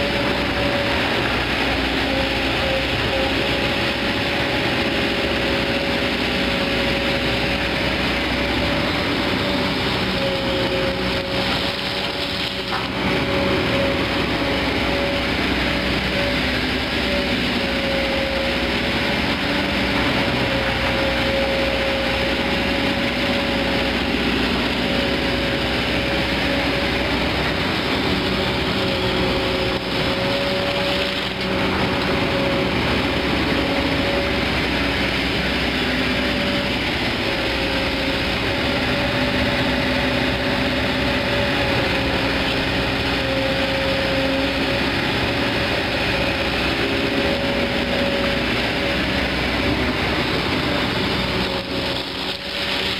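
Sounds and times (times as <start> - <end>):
excavator diesel engine running: 0.0 - 52.9
high hydraulic whine: 0.0 - 52.9.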